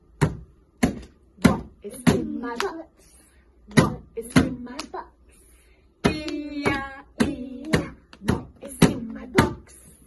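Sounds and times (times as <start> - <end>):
rhythmic hand clapping: 0.0 - 3.0, 3.7 - 5.1, 6.0 - 9.8
woman singing: 1.4 - 2.9, 6.0 - 10.0.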